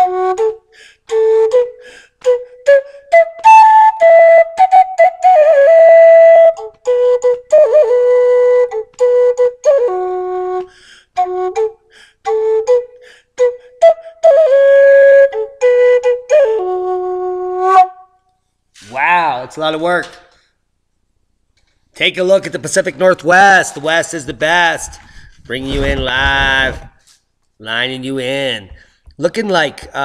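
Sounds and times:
flute playing slow melody: 0.0s - 18.2s.

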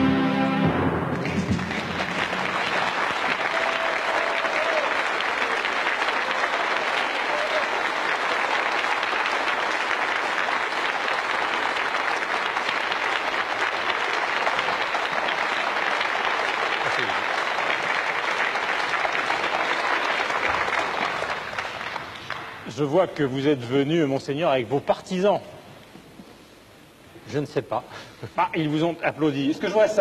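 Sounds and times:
audience applauding: 1.1s - 23.7s.

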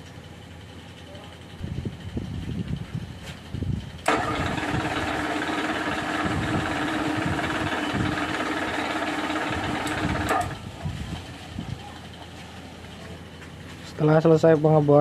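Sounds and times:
milling machine spindle humming: 4.1s - 10.6s.

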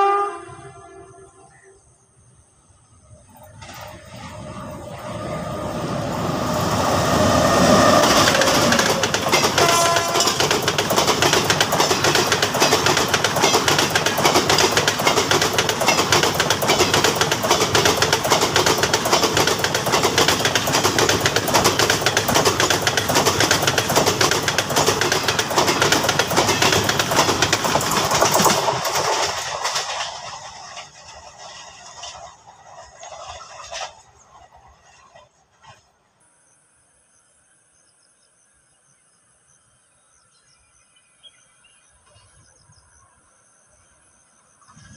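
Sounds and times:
train horn: 0.0s - 1.9s, 7.1s - 10.4s
train wheels rumbling on rails: 2.6s - 36.0s.

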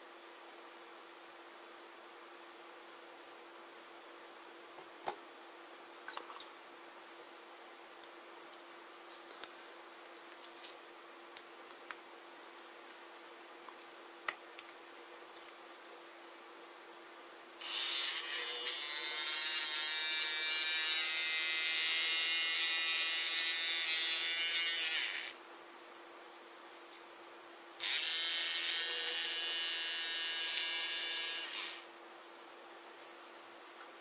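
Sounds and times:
small electric motor whining: 17.6s - 25.4s, 27.8s - 31.9s.

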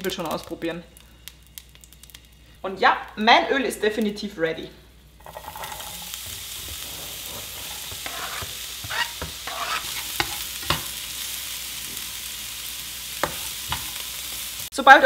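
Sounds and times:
onion sizzling in oil: 0.0s - 15.0s
spatula tapping and scraping pan: 5.2s - 11.0s, 13.2s - 14.0s.

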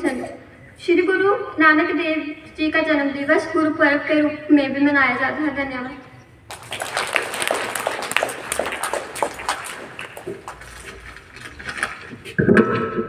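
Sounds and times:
children clapping: 6.5s - 12.0s.

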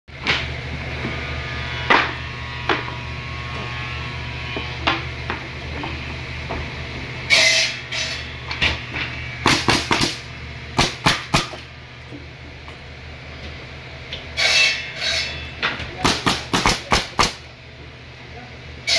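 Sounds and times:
low machine hum: 0.1s - 18.9s
nail gun firing into wood: 9.5s - 10.2s, 16.0s - 17.4s.

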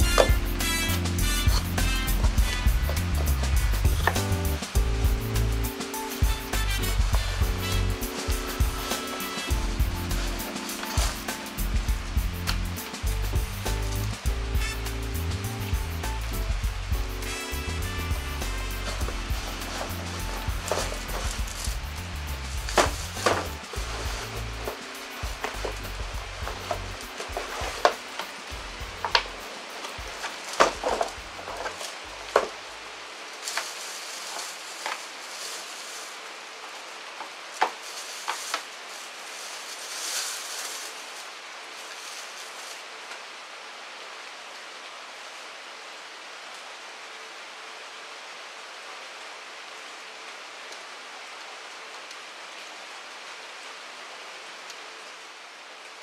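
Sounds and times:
steady hiss: 0.0s - 56.0s
plastic wrapping crinkling: 6.6s - 11.7s, 17.2s - 32.7s, 33.4s - 36.3s, 37.2s - 43.1s.

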